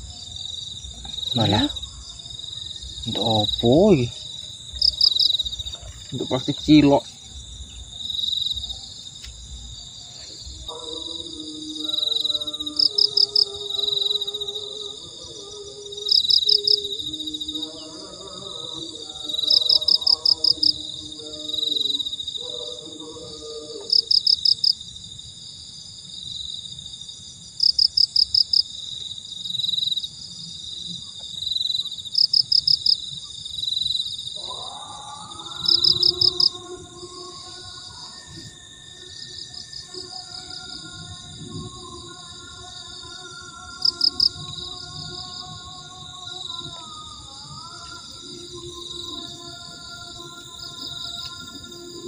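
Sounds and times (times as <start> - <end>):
insect trill: 0.0 - 52.0
insects droning: 0.0 - 52.0
soft background music: 34.5 - 52.0.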